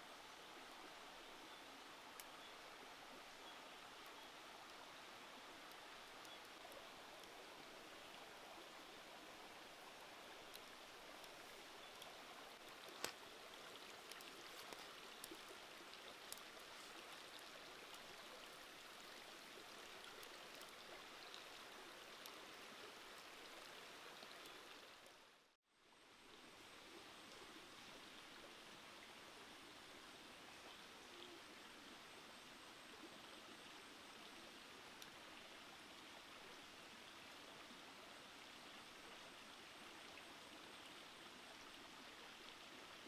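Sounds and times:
soup bubbling with small pops: 10.5s - 13.2s.

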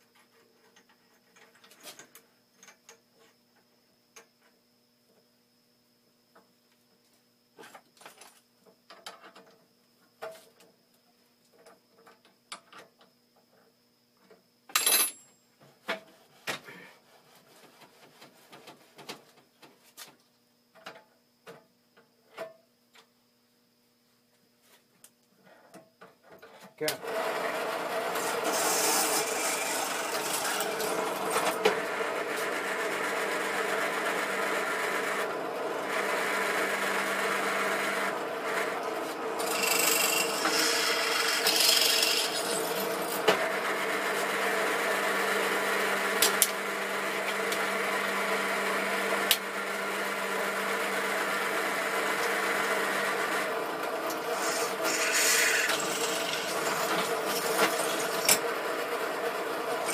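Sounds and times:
drill press motor hum: 27.1s - 59.9s
drill bit grinding: 27.3s - 59.9s.

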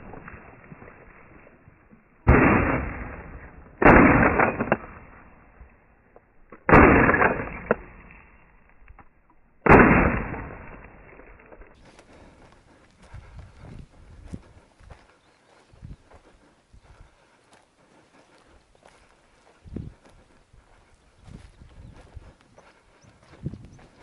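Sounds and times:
loud shotgun shots: 2.3s - 5.3s, 6.7s - 8.1s, 9.6s - 11.1s.

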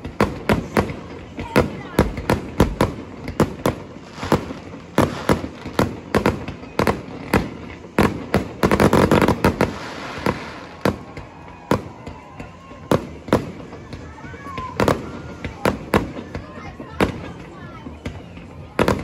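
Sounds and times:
fireworks bursting: 0.0s - 19.0s.

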